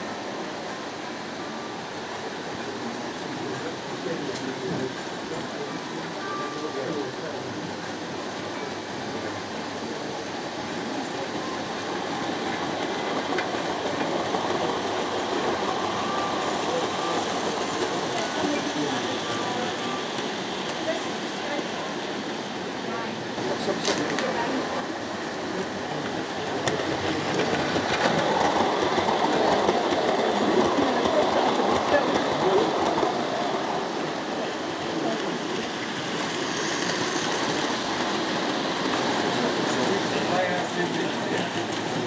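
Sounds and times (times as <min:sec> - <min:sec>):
model train wheels rumbling on rails: 0:00.0 - 0:42.0
model train wheels rattling on rails: 0:23.4 - 0:42.0.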